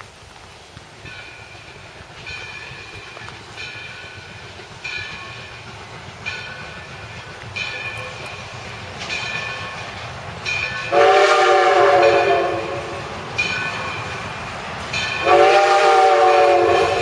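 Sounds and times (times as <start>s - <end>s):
low rumble of train: 0.0s - 17.0s
steam locomotive whistle blasts: 10.8s - 13.0s, 15.1s - 17.0s.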